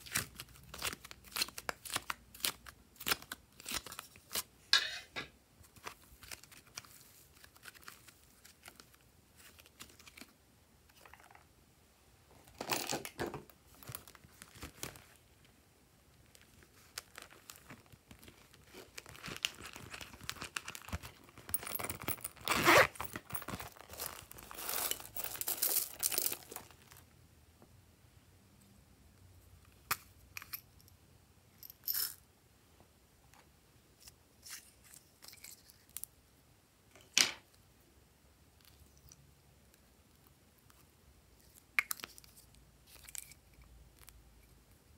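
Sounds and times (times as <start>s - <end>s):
vinyl pouch crinkling: 0.0s - 4.5s, 5.6s - 10.4s, 13.7s - 15.2s, 16.2s - 27.0s.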